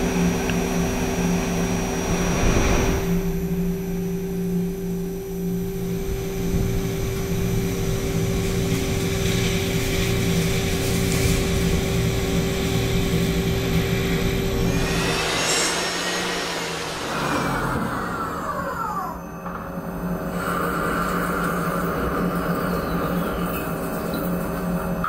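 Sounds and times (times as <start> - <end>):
lathe machine whine: 0.0 - 25.0
spindle slowing whine: 0.0 - 25.0.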